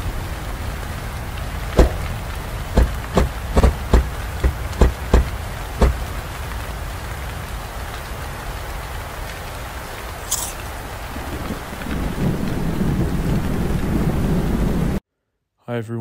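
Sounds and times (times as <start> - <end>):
heavy rain: 0.0 - 15.0
sharp hits: 1.8 - 2.2, 2.8 - 6.1.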